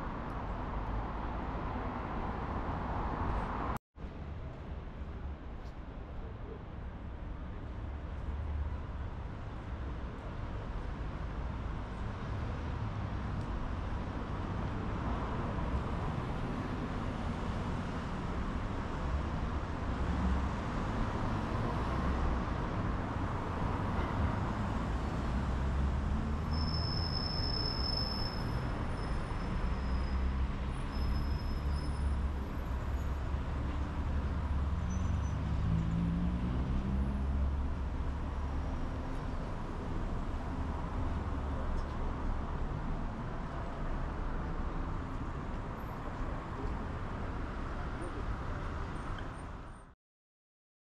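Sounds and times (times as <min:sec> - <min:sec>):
traffic passing: 0:00.0 - 0:03.8, 0:10.9 - 0:49.8
high squeal: 0:26.4 - 0:32.2.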